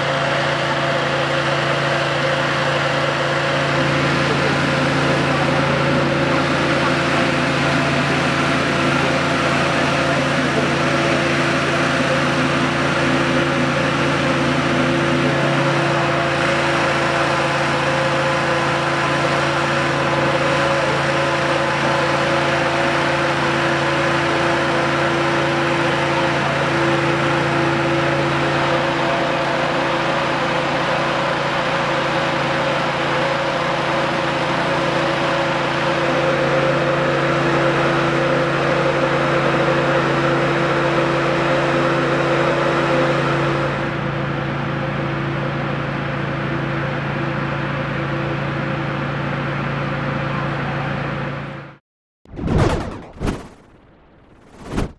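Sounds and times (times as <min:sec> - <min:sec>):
engine humming steadily: 0:00.0 - 0:51.8, 0:52.8 - 0:54.9.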